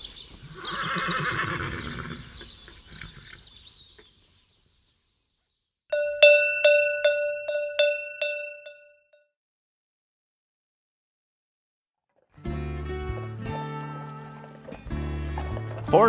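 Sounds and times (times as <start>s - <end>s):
horse neighing: 0.5s - 3.4s
cowbell ringing: 5.9s - 9.2s.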